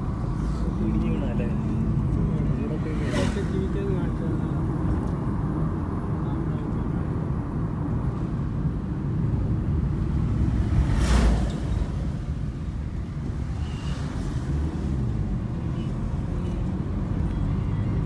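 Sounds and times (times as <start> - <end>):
car engine and road noise: 0.0 - 18.0.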